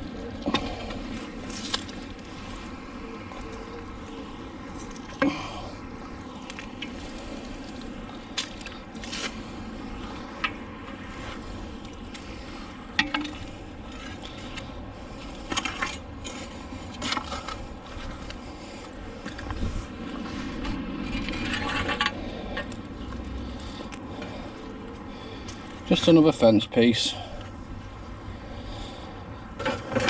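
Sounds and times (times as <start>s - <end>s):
metal fencing knocking and scraping: 13.0s - 13.4s.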